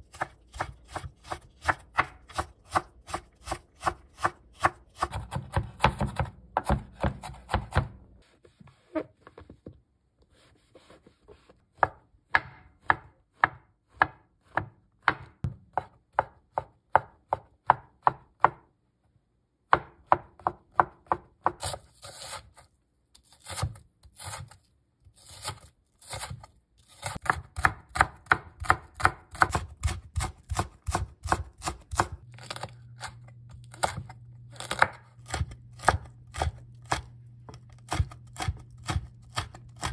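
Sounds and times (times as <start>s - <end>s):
knife chopping on wooden board: 0.1s - 8.0s, 11.7s - 18.7s, 25.3s - 39.9s.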